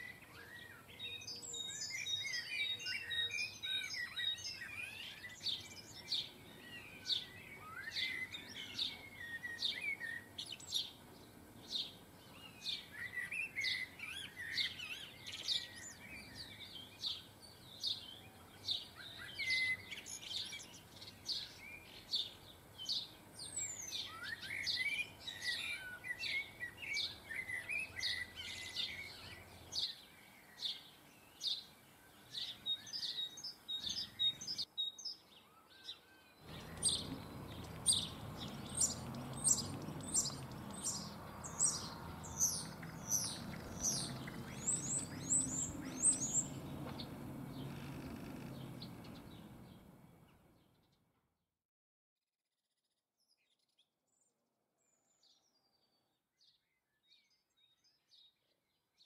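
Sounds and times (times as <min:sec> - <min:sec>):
songbirds chirping: 0:00.0 - 0:51.2, 0:53.2 - 0:59.0
bird twittering: 0:32.4 - 0:49.3.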